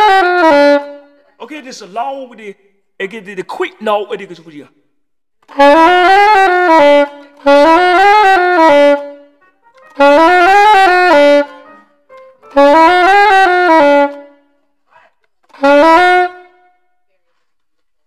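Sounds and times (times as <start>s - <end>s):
soprano saxophone playing: 5.5s - 14.4s.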